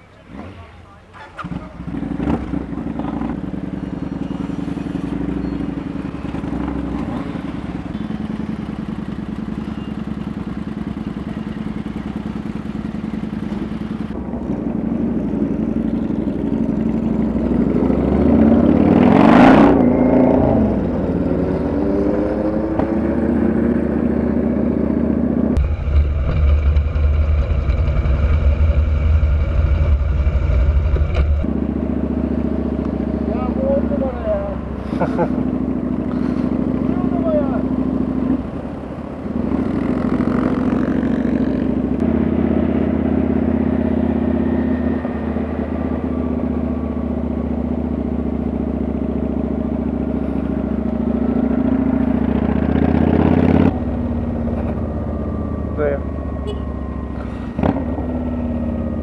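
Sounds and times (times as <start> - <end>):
road and wind noise: 0.0 - 59.0
motorcycle engine running: 1.3 - 59.0.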